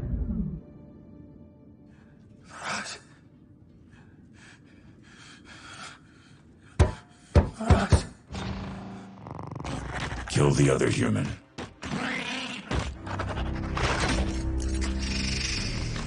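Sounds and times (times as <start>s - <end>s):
faint breaths: 1.8s - 7.6s.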